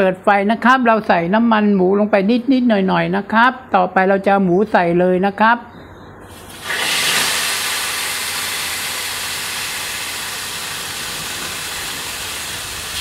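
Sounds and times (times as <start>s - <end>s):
meat sizzling in hot oil: 6.3s - 13.0s.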